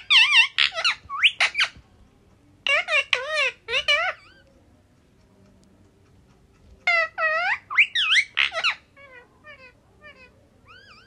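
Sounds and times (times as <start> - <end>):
parakeet chirps: 0.0 - 1.8, 2.7 - 4.5, 6.8 - 11.0
parakeet squawks: 0.0 - 1.8, 2.6 - 4.5, 6.8 - 11.0.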